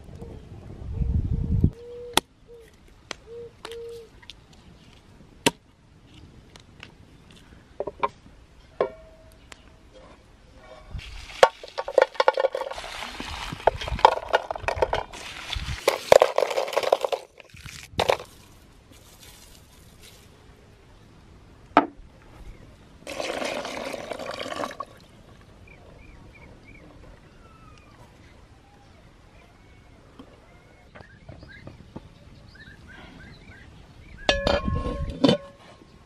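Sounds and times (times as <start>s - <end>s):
water splashing: 11.1s - 14.0s
water pouring into container: 12.5s - 14.0s, 23.1s - 25.0s.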